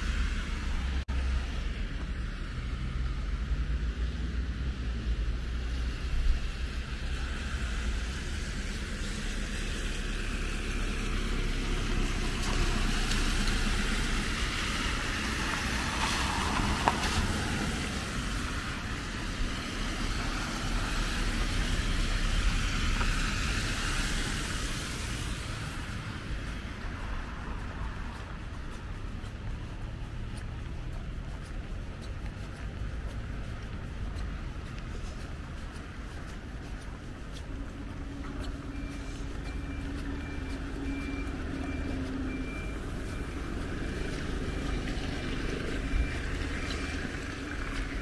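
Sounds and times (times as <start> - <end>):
rain falling on an umbrella: 5.6 - 31.9, 34.7 - 48.0.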